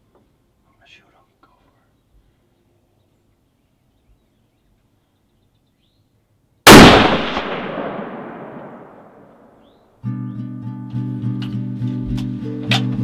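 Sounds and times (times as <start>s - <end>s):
rifle shot with echo: 6.7s - 9.7s.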